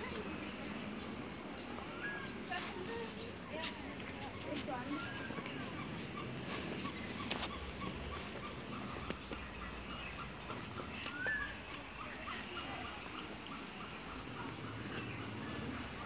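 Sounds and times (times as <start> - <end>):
bird calls and chirps: 0.0 - 16.0.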